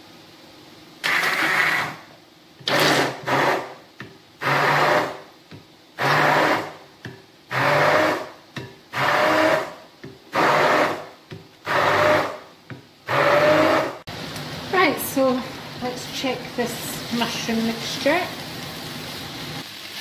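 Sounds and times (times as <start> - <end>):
stick blender whizzing: 1.0 - 2.0, 8.9 - 12.4.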